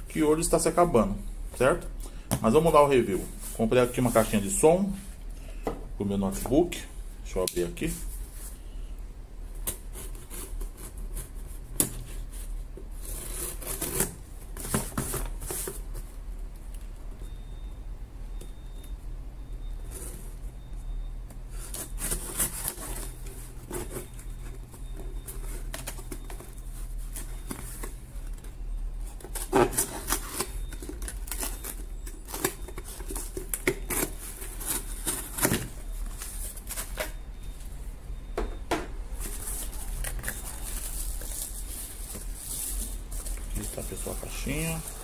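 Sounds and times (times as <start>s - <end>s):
plastic wrapping rustling: 2.4s - 5.3s, 21.6s - 37.8s, 39.1s - 45.0s
knife slitting packing tape: 13.0s - 14.2s.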